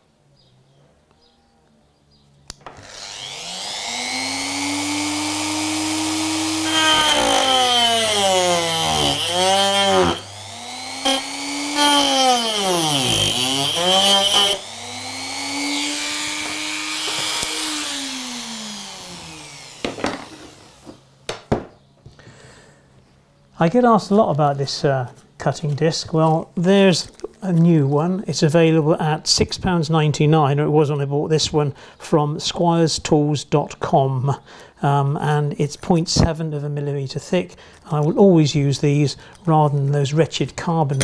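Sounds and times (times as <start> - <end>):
rotary tool grinding metal: 2.8 - 21.1.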